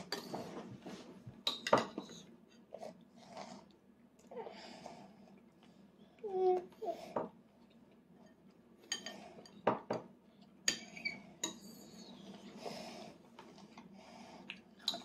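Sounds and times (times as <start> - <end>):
spoons clinking on plates: 1.4 - 2.2, 8.2 - 10.0.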